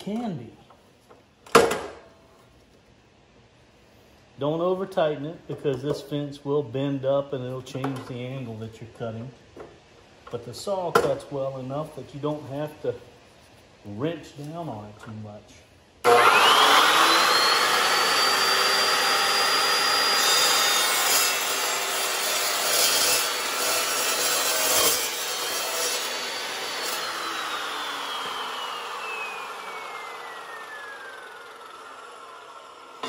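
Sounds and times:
chop saw whine: 16.0s - 33.0s
blade grinding through steel: 16.1s - 32.2s.

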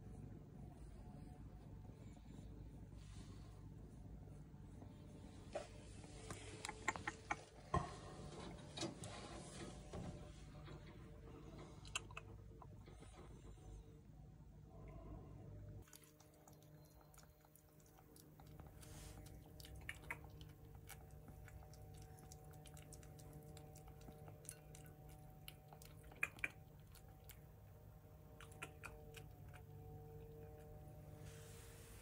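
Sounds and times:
steady low hum: 0.0s - 32.0s
small clicks and ticks: 15.8s - 27.6s.

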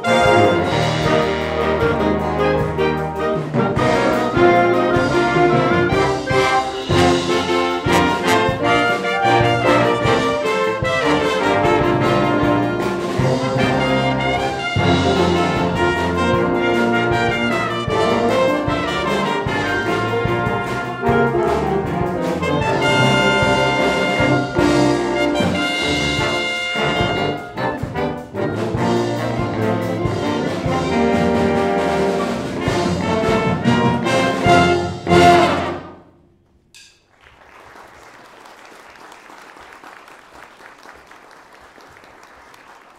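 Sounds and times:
wind band playing: 0.0s - 36.3s
faint applause: 37.1s - 42.9s.

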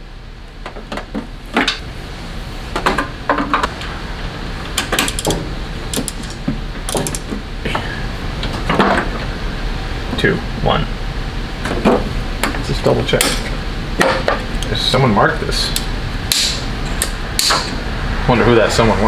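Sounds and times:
hand tools clicking and rattling: 4.8s - 7.3s
ratchet clicking: 4.8s - 7.3s.

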